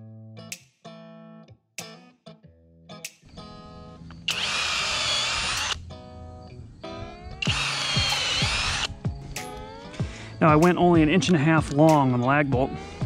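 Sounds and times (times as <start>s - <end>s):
guitar music: 0.0s - 13.0s
cordless driver driving bolts: 4.3s - 5.8s, 7.4s - 8.9s.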